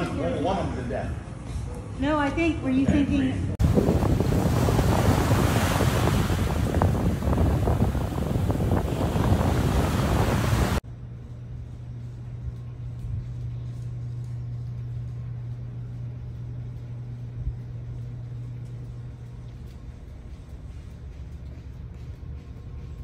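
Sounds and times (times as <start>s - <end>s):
rushing wind: 3.6s - 10.8s.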